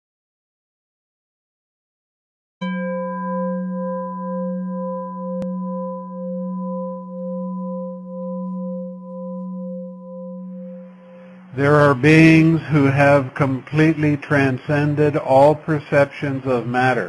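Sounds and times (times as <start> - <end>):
singing bowl ringing: 2.6 - 12.2.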